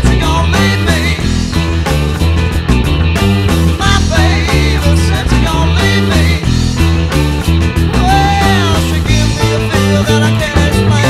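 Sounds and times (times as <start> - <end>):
electric bass line: 0.0 - 11.0
electric guitar bending notes: 0.0 - 11.0.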